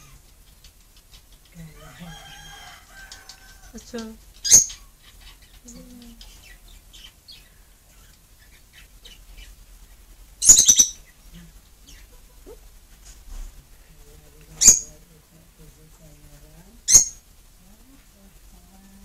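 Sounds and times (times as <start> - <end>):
bird chirping: 0.0 - 19.0
shrill bird calls: 1.0 - 11.2.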